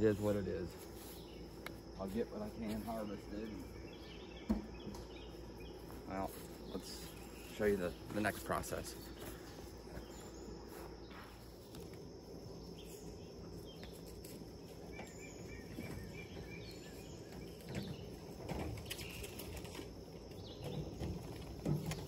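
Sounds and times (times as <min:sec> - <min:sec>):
low background ambience: 0:00.0 - 0:22.0
rustles: 0:00.0 - 0:22.0.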